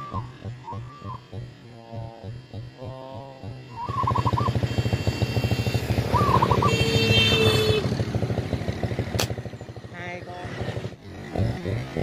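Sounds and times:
warbling chirps: 0.0 - 4.9, 6.0 - 6.8
motorcycle engine running: 0.0 - 12.0.

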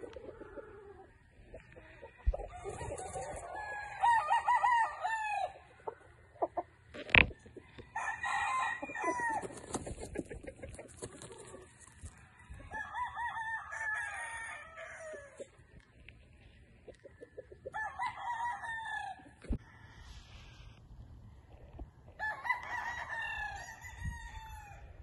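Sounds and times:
rooster crowing: 2.2 - 5.6, 7.6 - 9.6, 12.3 - 15.4, 17.7 - 20.1, 22.2 - 24.9.

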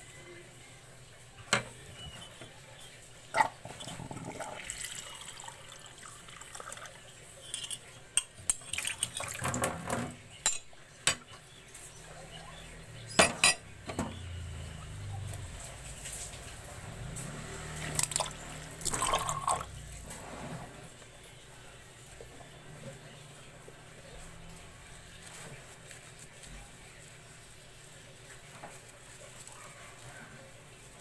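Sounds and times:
running water: 2.4 - 10.1, 13.4 - 31.0
dishes clinking: 7.4 - 11.4, 13.1 - 14.2
sponge scrubbing dishes: 22.2 - 31.0.

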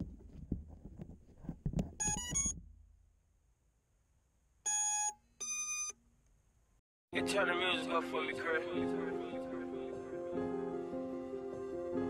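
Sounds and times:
handling thumps and rumble: 0.0 - 2.9.

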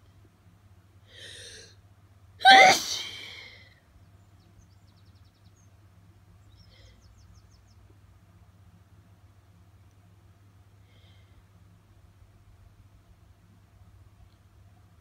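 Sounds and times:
sharp breath in: 1.1 - 1.7
person sneezing: 2.4 - 3.6.

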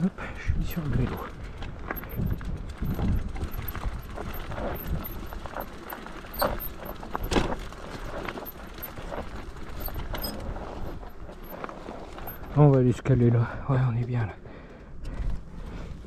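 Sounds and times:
bike rattles and knocks: 0.6 - 13.1.

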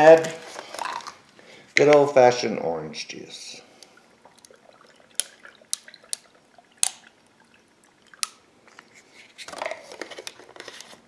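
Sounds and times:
ice cubes clicking and cracking: 0.5 - 1.2
juice pouring and splashing: 0.5 - 1.2, 3.6 - 9.4.

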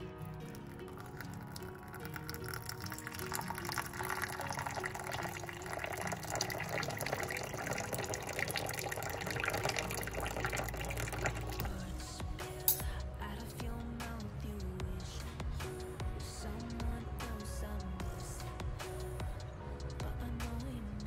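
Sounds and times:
water pouring into mug: 0.0 - 12.0
background music: 0.0 - 21.0.

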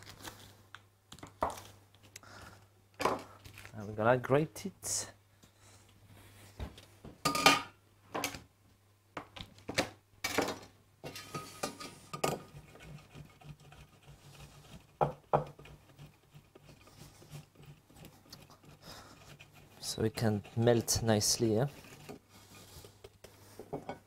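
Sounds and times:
cheese grating rasps: 12.4 - 23.6.

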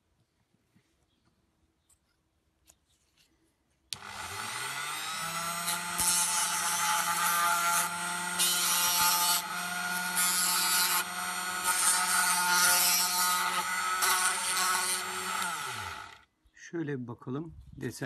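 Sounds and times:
rotary tool motor hum: 4.0 - 16.2
sandpaper rasping on bead: 5.7 - 9.5.

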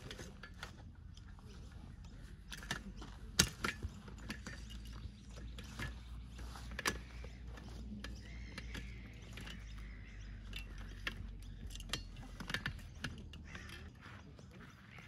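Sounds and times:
folding chair frames clicking: 0.0 - 13.9.

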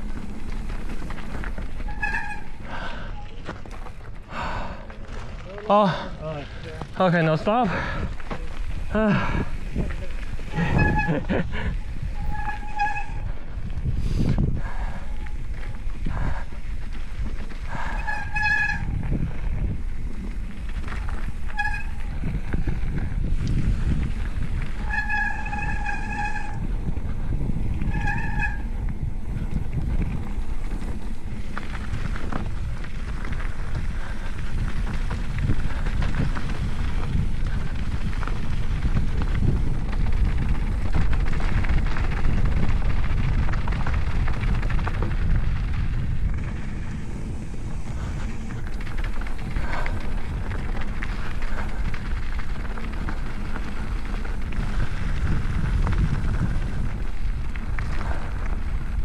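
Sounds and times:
bike tyres rumbling: 0.0 - 59.0
disc brakes squealing: 1.6 - 3.4, 9.9 - 13.3, 17.8 - 19.0, 24.8 - 26.7, 27.8 - 28.7
wind on the microphone: 5.8 - 59.0.

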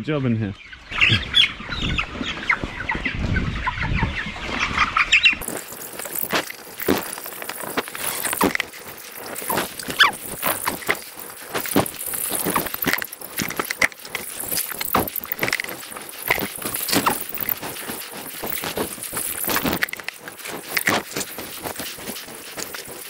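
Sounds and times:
chickens cheeping and clucking: 0.5 - 5.4.

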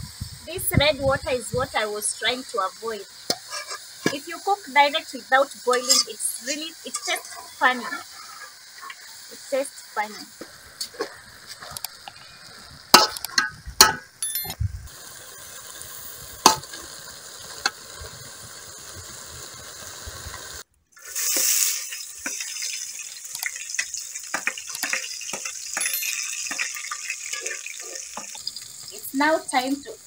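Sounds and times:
food hissing in pot: 0.0 - 13.1, 14.9 - 30.0
spoon scraping metal pot: 3.3 - 4.2, 5.7 - 9.0, 24.3 - 28.4
fire clicks and pops: 10.3 - 22.6, 23.2 - 27.5.

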